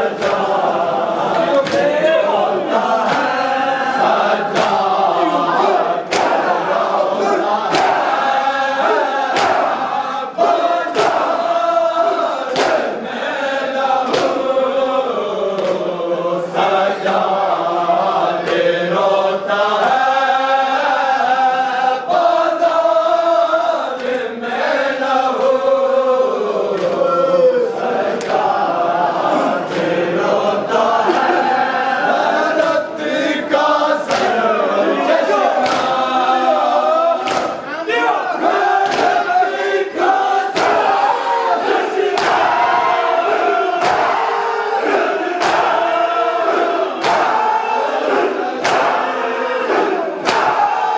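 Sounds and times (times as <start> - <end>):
men chanting together: 0.0 - 50.9
hands slapping chests: 0.1 - 0.7, 1.3 - 2.1, 3.0 - 3.5, 4.4 - 11.5, 12.5 - 13.0, 14.0 - 14.5, 15.5 - 15.9, 18.4 - 18.7, 26.7 - 27.1, 28.1 - 28.6, 32.4 - 32.8, 34.0 - 34.5, 35.5 - 36.1, 37.2 - 37.6, 38.5 - 44.3, 44.9 - 49.1, 49.7 - 50.7.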